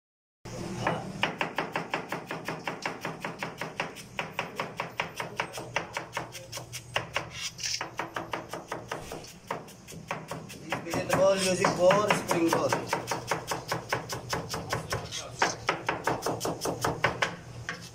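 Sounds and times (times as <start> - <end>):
knife chopping on cutting board: 0.8 - 17.9.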